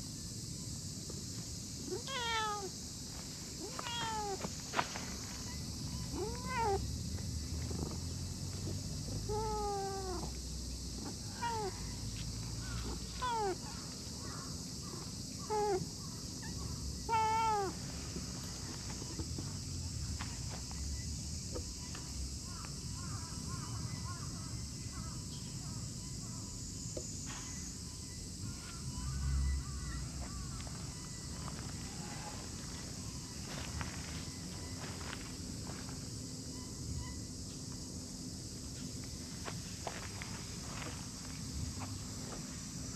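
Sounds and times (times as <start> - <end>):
cat meowing: 1.9 - 2.7, 3.6 - 4.4, 6.0 - 6.8, 9.3 - 10.3, 11.3 - 11.8, 12.8 - 13.6, 17.1 - 17.8
faint chirps: 3.3 - 42.9.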